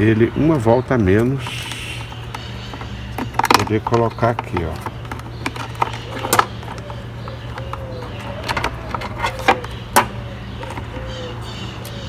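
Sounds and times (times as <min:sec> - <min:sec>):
plastic clicking and knocking: 0:02.2 - 0:10.9.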